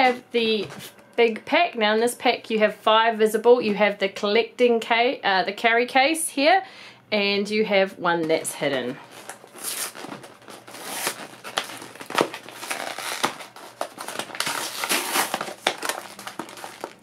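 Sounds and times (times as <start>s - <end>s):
plastic crinkling: 8.6s - 17.0s
card ripping: 9.1s - 17.0s.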